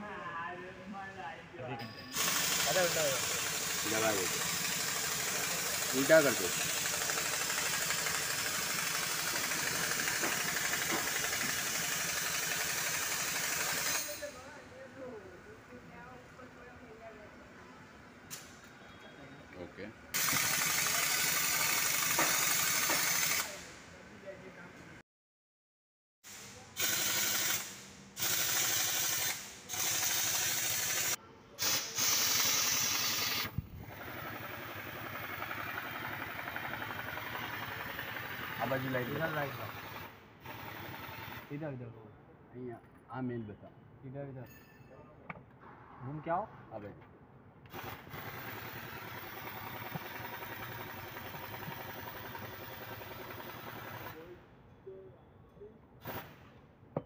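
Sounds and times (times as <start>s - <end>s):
workshop hiss: 2.1s - 14.6s, 20.1s - 24.0s, 26.2s - 41.7s, 47.7s - 54.3s, 56.0s - 56.6s
bursts of pressurised hissing: 2.2s - 14.0s, 26.3s - 41.5s, 47.7s - 54.2s, 56.0s - 56.4s.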